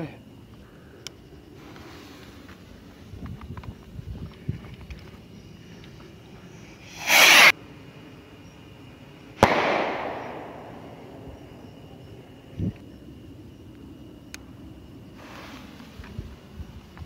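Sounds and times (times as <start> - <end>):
firework bang: 6.9 - 7.5, 9.4 - 11.5
rocket launch whoosh: 6.9 - 7.5.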